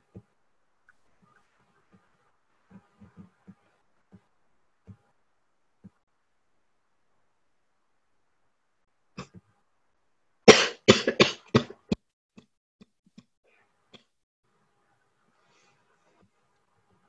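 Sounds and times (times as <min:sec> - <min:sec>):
woman coughing: 0:10.5 - 0:11.8.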